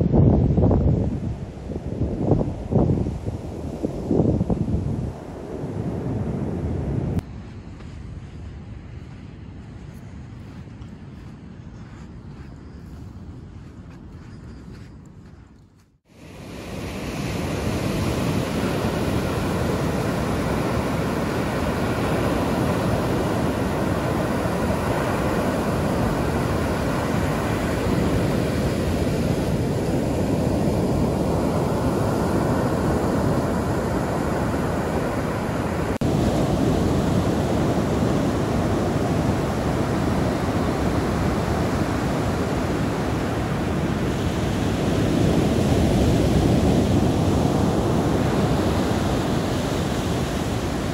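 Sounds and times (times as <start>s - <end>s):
ocean surf breaking: 16.1s - 50.9s.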